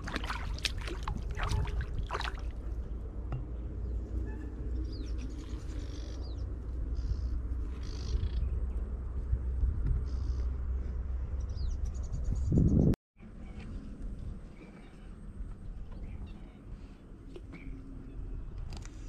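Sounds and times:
fish splashing at water surface: 0:00.0 - 0:02.6
steady low rumble: 0:00.0 - 0:19.0.

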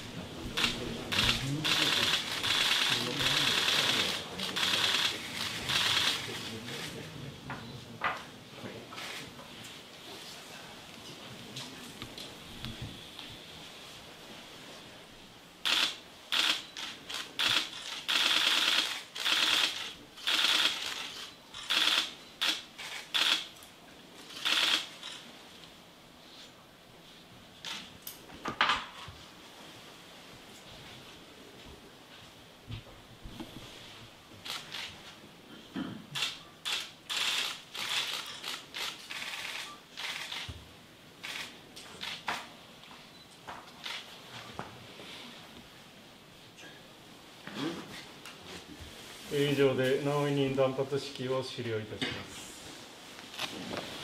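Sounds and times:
camera shutters clicking: 0:00.6 - 0:07.0, 0:15.6 - 0:23.5, 0:24.3 - 0:25.2, 0:27.6 - 0:27.9, 0:34.4 - 0:34.9, 0:36.2 - 0:40.6, 0:41.2 - 0:42.5, 0:43.8 - 0:44.0, 0:53.3 - 0:53.6.

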